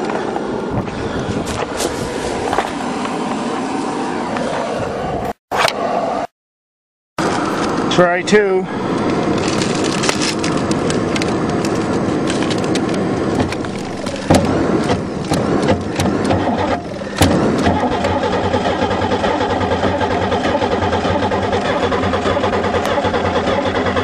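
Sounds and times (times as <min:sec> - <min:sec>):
engine cranking without firing: 0:08.8 - 0:24.0.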